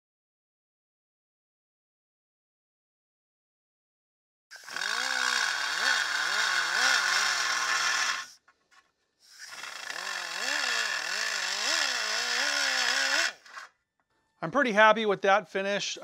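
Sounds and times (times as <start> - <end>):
rotary tool grinding metal: 4.5 - 8.4, 9.2 - 13.8.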